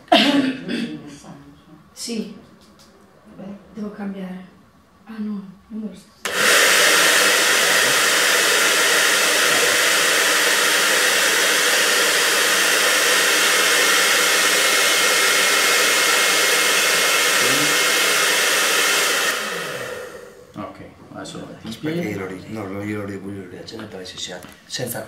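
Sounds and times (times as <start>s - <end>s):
hair dryer running: 6.2s - 20.5s.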